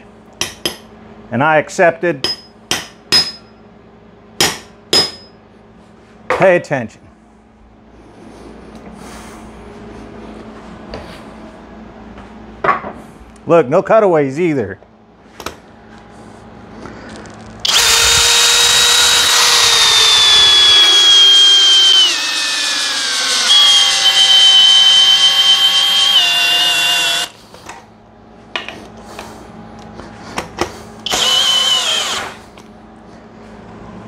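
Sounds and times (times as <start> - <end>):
cordless drill motor whining: 17.6 - 27.4, 31.0 - 32.5.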